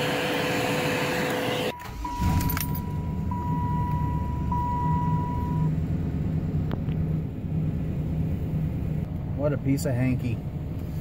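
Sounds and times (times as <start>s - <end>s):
car engine idling: 0.0s - 11.0s
car warning chime: 1.7s - 5.8s.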